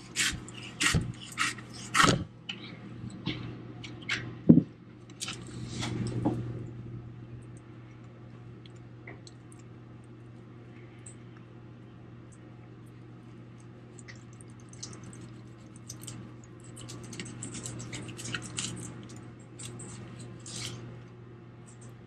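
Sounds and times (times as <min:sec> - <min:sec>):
knife scraping fish skin: 0:00.0 - 0:02.2, 0:16.7 - 0:20.8.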